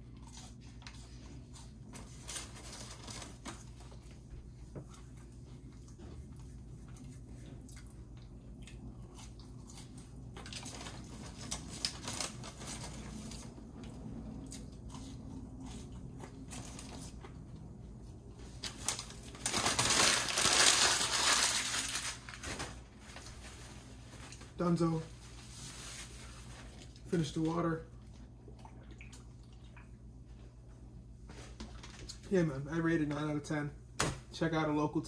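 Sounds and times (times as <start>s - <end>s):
soft chewing: 0.0s - 2.5s, 3.3s - 18.6s, 26.2s - 27.2s, 27.8s - 32.2s
paper packaging crinkling: 1.8s - 4.2s, 10.4s - 13.6s, 18.4s - 27.4s.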